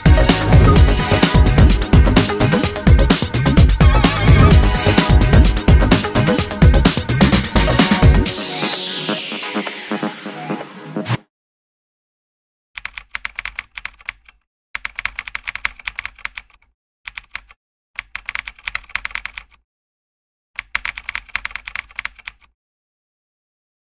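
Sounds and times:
rapid keyboard typing clicks: 12.8 - 19.6, 20.6 - 22.5.

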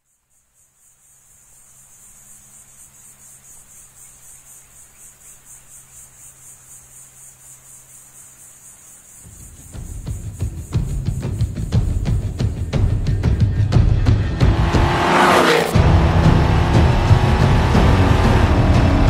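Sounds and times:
crickets chirping: 0.0 - 15.8
deep rumble: 13.1 - 19.0.

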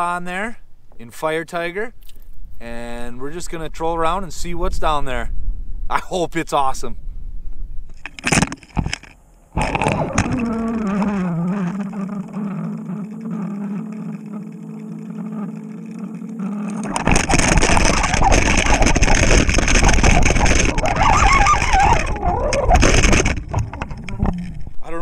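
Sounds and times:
underwater boat motor hum: 9.5 - 24.9
rough rushing noise: 16.2 - 24.8.

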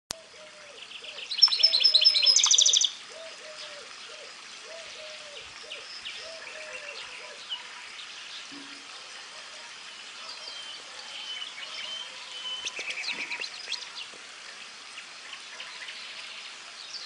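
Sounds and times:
bird twittering: 0.4 - 7.6
finch singing fast trills: 0.9 - 3.0.

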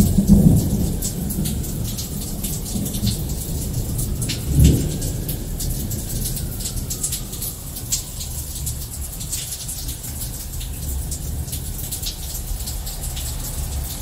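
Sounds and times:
steady rain: 0.0 - 14.0.

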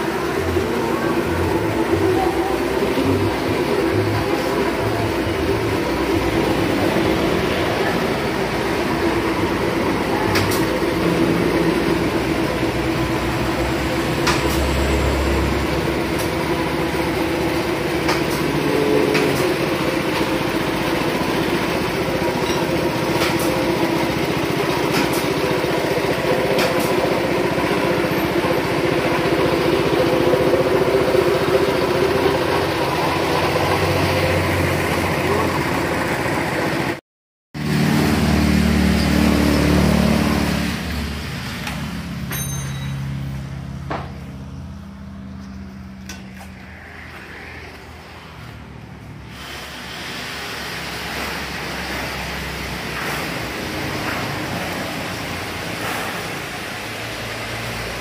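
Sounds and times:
small engine running: 0.0 - 37.0.

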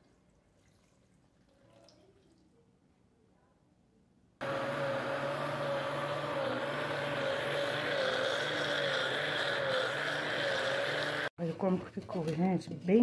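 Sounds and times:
blender motor whining: 4.4 - 11.3.

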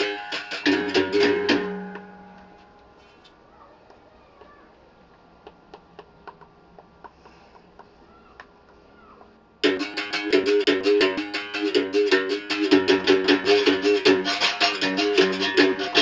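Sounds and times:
berimbau playing: 0.0 - 2.6, 9.6 - 16.0
faint clicks and taps: 2.8 - 9.4.

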